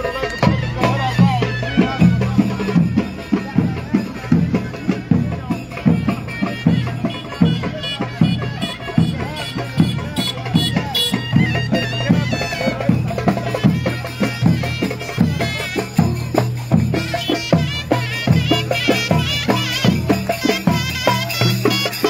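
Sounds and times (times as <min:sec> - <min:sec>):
shrill reed pipe melody: 0:00.0 - 0:22.0
bass drum beating: 0:00.4 - 0:21.5.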